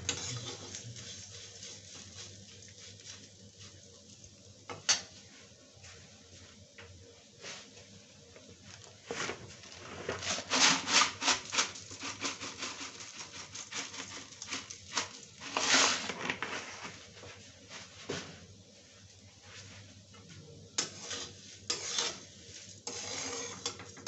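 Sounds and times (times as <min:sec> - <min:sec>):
dry flakes pouring into metal pan: 0:09.7 - 0:16.5.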